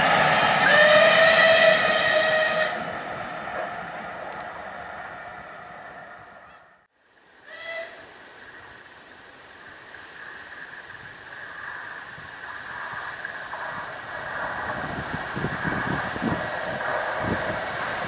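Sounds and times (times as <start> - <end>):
steam locomotive whistle blast: 0.0 - 3.6
train passing: 0.0 - 6.9, 10.2 - 18.0
faint steady hiss: 6.8 - 18.0.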